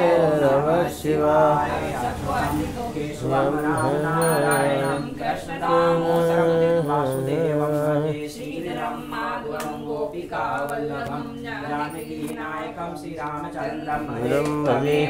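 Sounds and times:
man chanting: 0:00.0 - 0:08.4, 0:13.6 - 0:15.0.

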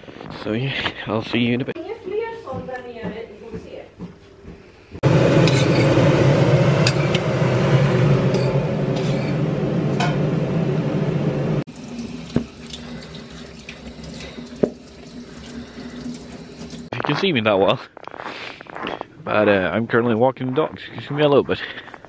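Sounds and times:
tap water rushing into metal pot: 0:11.7 - 0:16.9.

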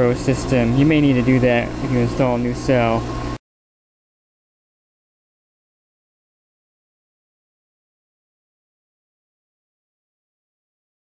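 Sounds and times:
person speaking: 0:00.0 - 0:03.1
steady mechanical hum: 0:00.0 - 0:03.4.

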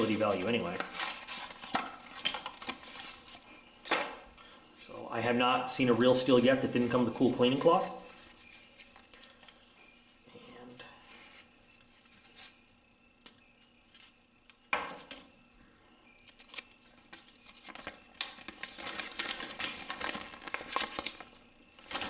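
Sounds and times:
packaging crinkling and rustling: 0:00.0 - 0:03.6, 0:16.1 - 0:22.0
packaging crackle: 0:16.2 - 0:22.0.

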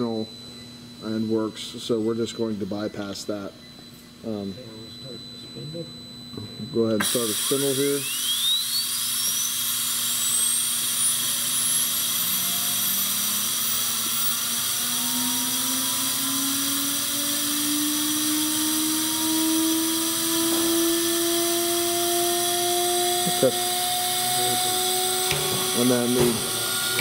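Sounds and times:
grinding spindle whine rising: 0:00.0 - 0:27.0
low rising tones: 0:18.8 - 0:27.0.

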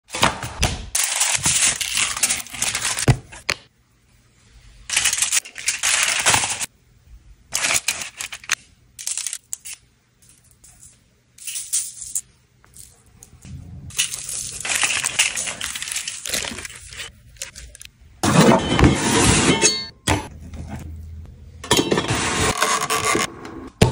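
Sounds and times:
aluminium foil crinkling: 0:01.0 - 0:03.1, 0:04.9 - 0:06.7, 0:07.5 - 0:10.8, 0:13.9 - 0:17.9.

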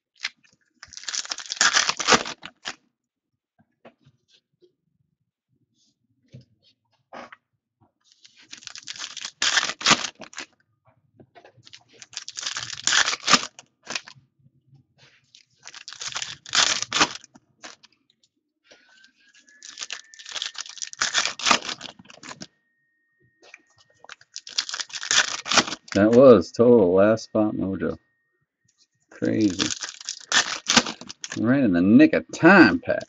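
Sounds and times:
foil wrappers tearing and crinkling: 0:00.2 - 0:02.8, 0:08.2 - 0:10.4, 0:11.7 - 0:14.1, 0:15.4 - 0:17.9, 0:19.5 - 0:22.5, 0:24.0 - 0:26.2, 0:29.2 - 0:31.4.

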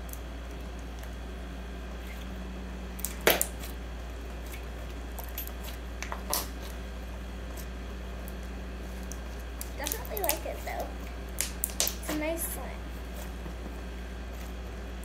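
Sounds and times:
steady low hum: 0:00.0 - 0:15.0
slime squelching: 0:01.9 - 0:06.8, 0:07.4 - 0:13.4.

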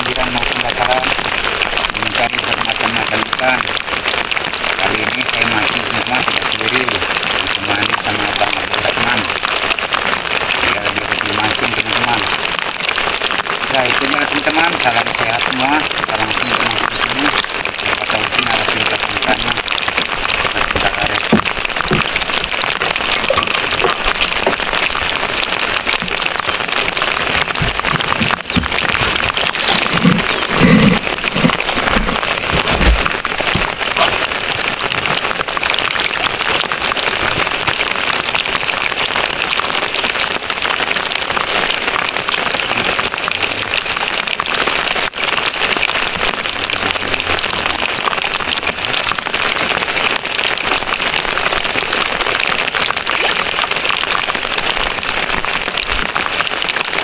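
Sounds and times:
steady rain falling: 0:00.0 - 0:57.0
low knocks and bumps: 0:18.3 - 0:34.3.

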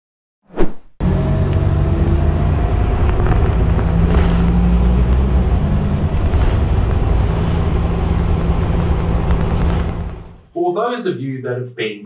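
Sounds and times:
diesel bus engine hum: 0:01.0 - 0:10.5.

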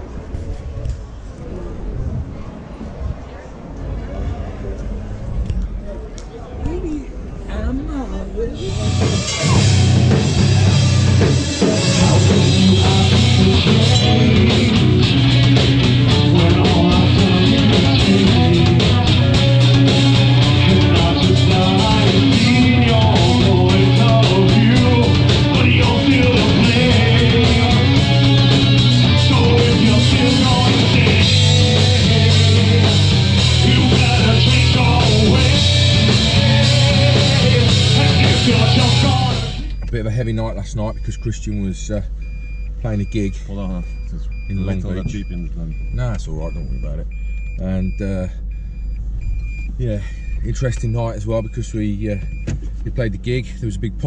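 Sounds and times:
electric guitars: 0:08.6 - 0:39.8
rapid drum hits: 0:08.7 - 0:39.7.

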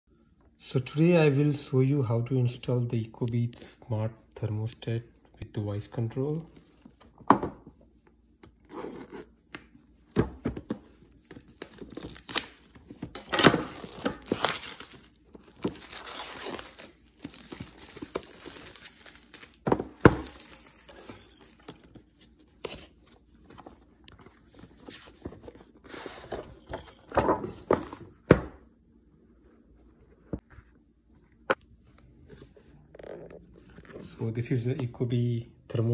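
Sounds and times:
plastic wrap crinkling: 0:11.4 - 0:21.8
knife slitting plastic wrap: 0:13.2 - 0:15.1.

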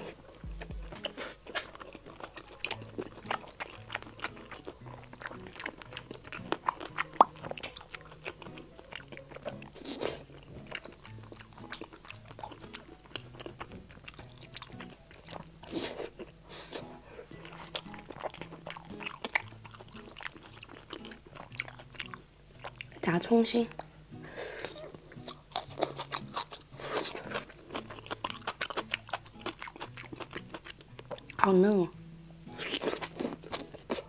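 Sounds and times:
close chewing and crunching: 0:00.0 - 0:34.0.

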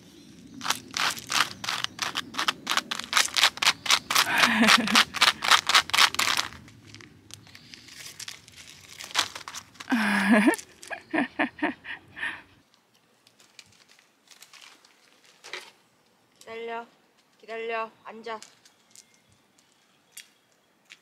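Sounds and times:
plastic packaging crinkling: 0:00.6 - 0:11.0, 0:13.3 - 0:15.7.

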